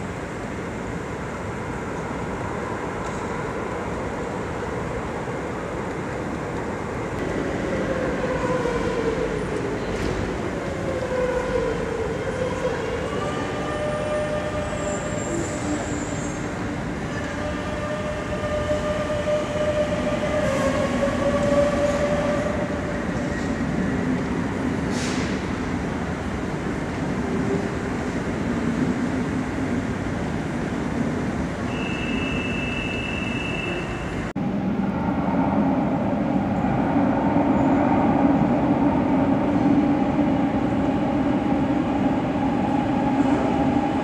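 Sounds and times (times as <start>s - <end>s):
train rumble: 0.0s - 44.0s.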